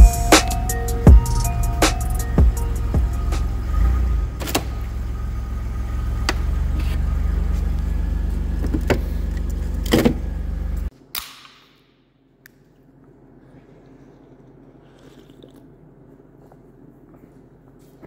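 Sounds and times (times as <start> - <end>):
vehicle idling hum: 0.0 - 10.9.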